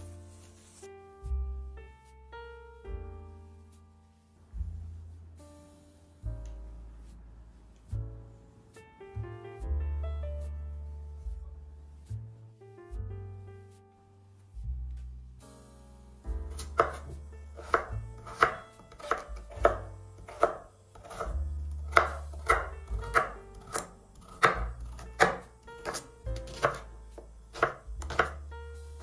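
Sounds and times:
knife chopping on cutting board: 0:16.5 - 0:28.5.

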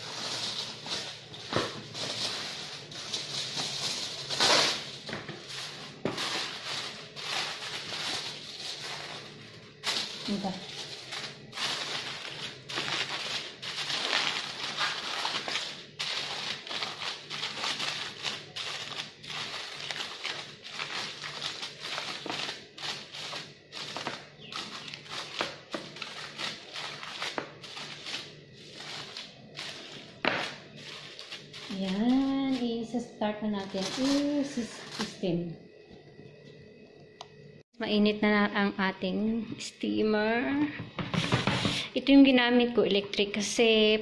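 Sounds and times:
aluminium foil crinkling: 0:00.0 - 0:35.5.

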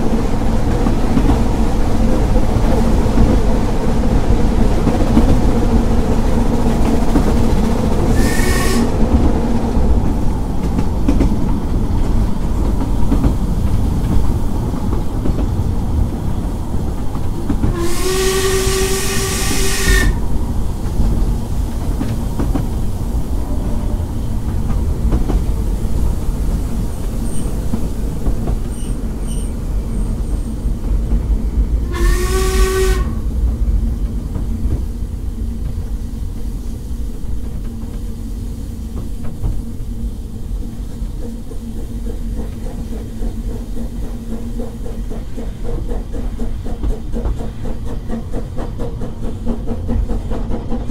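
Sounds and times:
moving train rumble: 0:00.0 - 0:50.9
steam locomotive whistle: 0:08.1 - 0:09.0, 0:17.7 - 0:20.2, 0:31.8 - 0:33.3.

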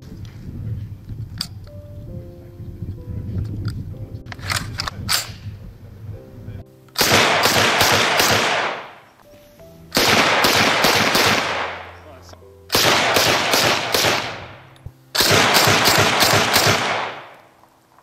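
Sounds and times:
music: 0:00.0 - 0:18.0
submachine gun automatic fire: 0:07.0 - 0:08.9, 0:10.0 - 0:11.8, 0:12.7 - 0:14.5, 0:15.2 - 0:17.3.

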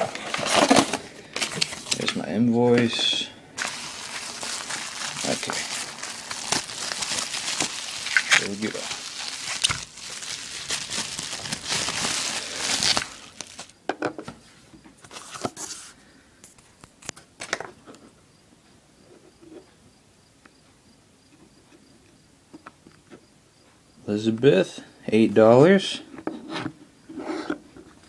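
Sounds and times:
bubble wrap crinkling: 0:03.6 - 0:13.8.

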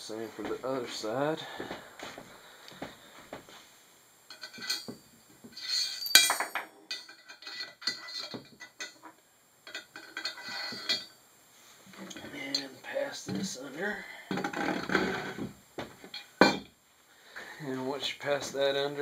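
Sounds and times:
metal bolts clinking and scraping: 0:04.3 - 0:11.2.

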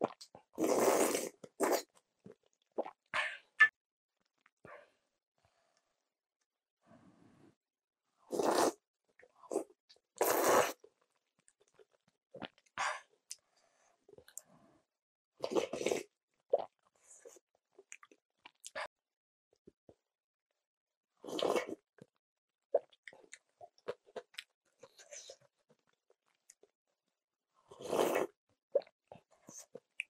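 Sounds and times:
noodle slurping: 0:00.0 - 0:01.9, 0:08.3 - 0:08.8, 0:09.5 - 0:10.8, 0:27.7 - 0:28.9.

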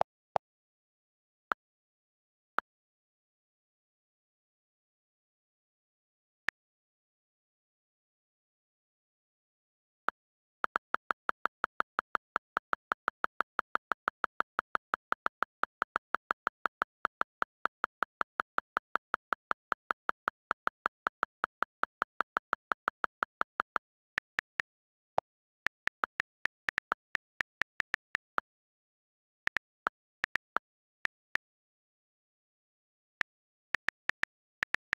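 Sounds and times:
on-screen keyboard clicks: 0:10.1 - 0:28.6, 0:29.5 - 0:31.4, 0:33.2 - 0:34.9.

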